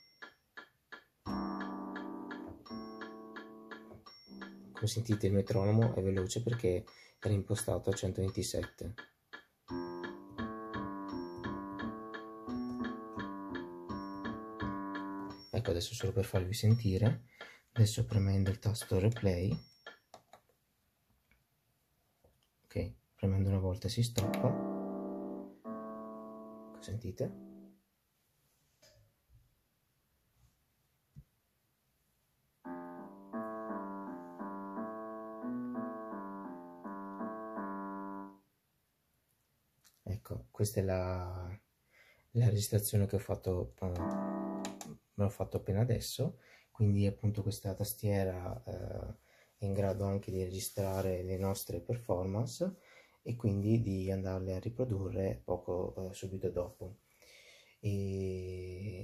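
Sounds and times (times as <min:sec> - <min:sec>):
keyboard playing piano tune: 0:00.0 - 0:17.1, 0:24.1 - 0:27.8, 0:32.6 - 0:38.5, 0:43.8 - 0:45.0
metronome ticking fast: 0:00.0 - 0:20.2, 0:24.0 - 0:25.0, 0:43.8 - 0:44.9.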